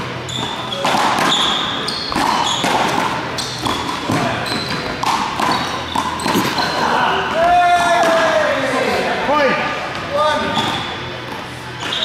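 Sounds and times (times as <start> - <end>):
trainers squeaking on floor: 0.0 - 7.3, 10.4 - 11.1, 11.7 - 12.0.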